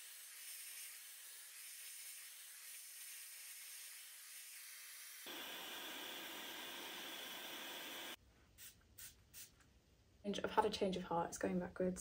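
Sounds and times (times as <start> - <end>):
hair dryer hiss: 0.0 - 9.5.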